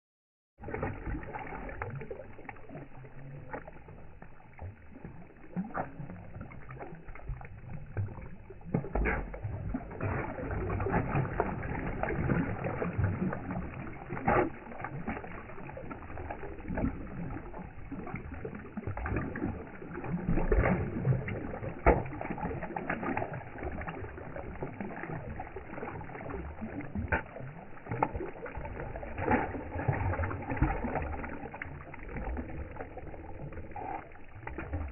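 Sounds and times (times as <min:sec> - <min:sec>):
fish splashing in a pond: 0:00.6 - 0:34.9.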